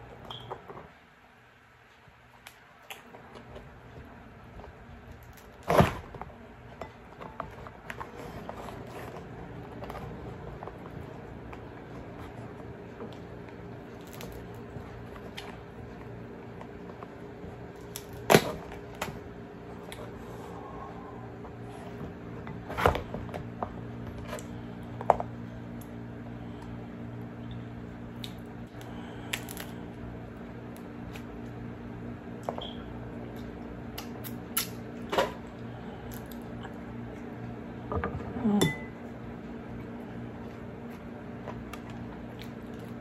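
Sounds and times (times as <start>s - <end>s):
crab shell cracking: 13.9s - 15.6s, 28.1s - 30.0s
scissors crunching shell: 28.2s - 29.8s.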